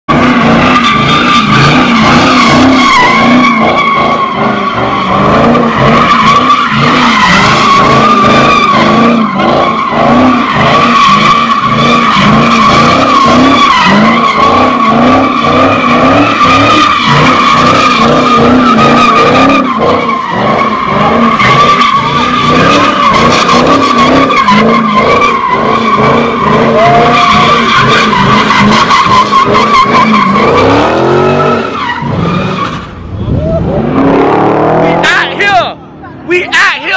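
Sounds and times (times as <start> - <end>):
car engine at high revs: 0.0 - 36.0
tires squealing: 0.1 - 36.9.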